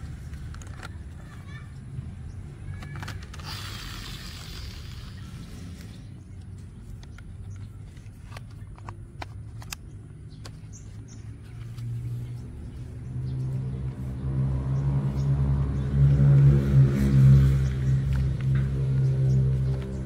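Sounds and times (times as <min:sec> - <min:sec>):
engine running low hum: 0:00.0 - 0:20.0
plastic toy parts clicking: 0:00.3 - 0:01.2, 0:02.7 - 0:05.2.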